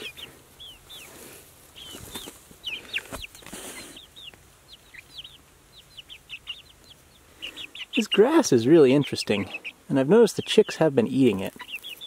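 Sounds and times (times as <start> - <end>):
rustling in dry grass: 0.0 - 5.3, 11.1 - 12.0
chicks peeping: 0.0 - 12.0.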